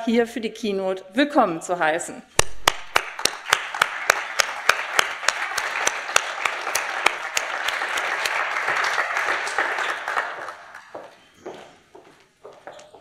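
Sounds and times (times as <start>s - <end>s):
sharp claps close to microphone: 2.3s - 11.1s
audience applauding: 2.4s - 11.2s.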